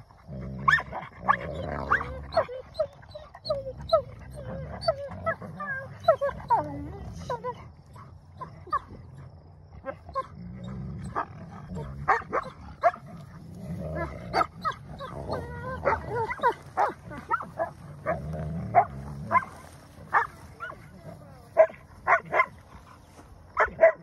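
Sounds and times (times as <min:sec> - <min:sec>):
puppies yipping and whining: 0:00.7 - 0:07.5, 0:14.4 - 0:17.8.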